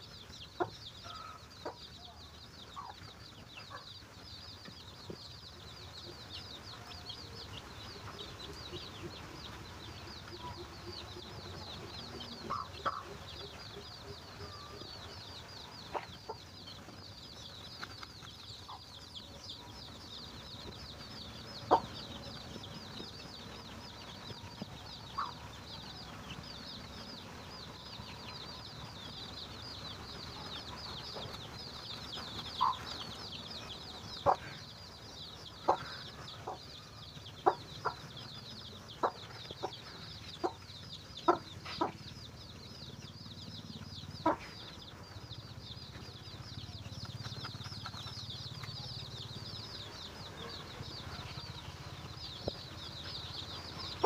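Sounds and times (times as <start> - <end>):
chicks peeping: 0.0 - 54.0
hen clucking: 2.8 - 3.0, 8.0 - 15.1, 21.0 - 22.5, 25.0 - 25.5, 32.3 - 33.2, 35.5 - 36.6, 37.4 - 42.2, 44.0 - 45.0.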